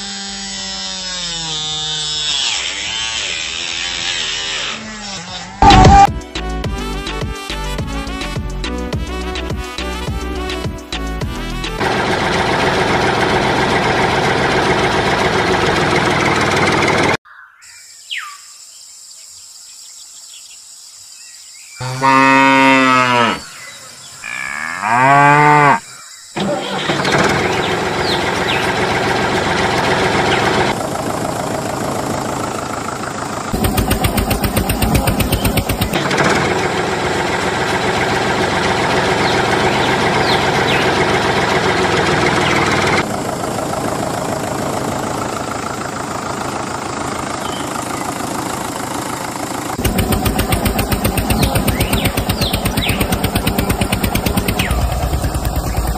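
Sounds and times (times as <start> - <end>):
tractor engine running: 5.6 - 6.2, 9.4 - 17.2, 26.4 - 55.9
cow mooing: 21.8 - 23.6, 24.2 - 25.9.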